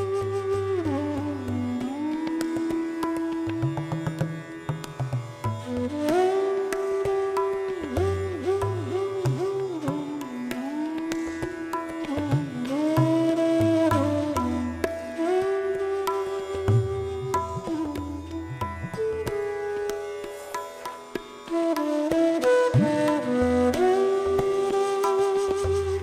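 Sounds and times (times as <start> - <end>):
indian classical music: 0.0 - 26.0.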